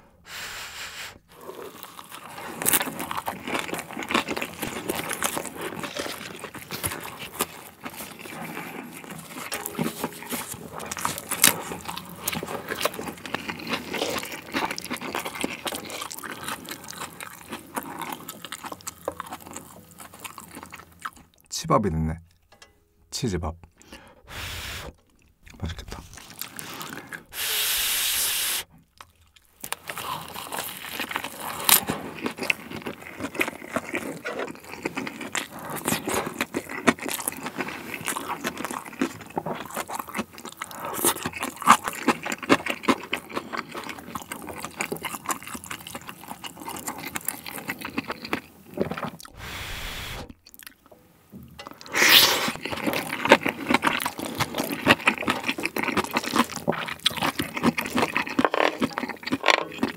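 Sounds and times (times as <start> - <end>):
close chewing and crunching: 1.2 - 22.7, 23.6 - 59.9
wet mouth sounds: 23.8 - 30.4, 45.4 - 50.8.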